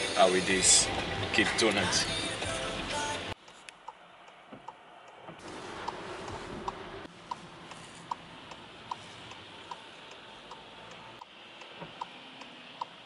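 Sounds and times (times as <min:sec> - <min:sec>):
turn signal ticking: 0:03.3 - 0:13.0.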